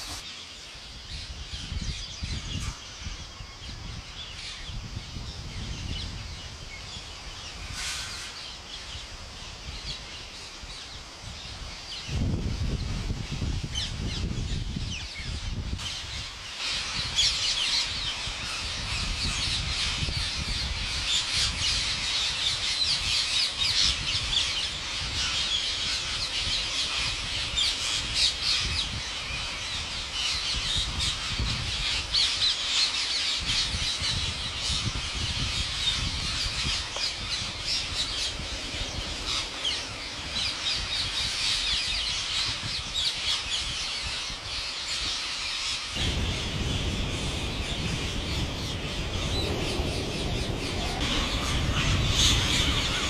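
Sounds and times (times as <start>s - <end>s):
parakeets screeching: 16.4s - 53.0s
low rumble: 46.0s - 53.0s.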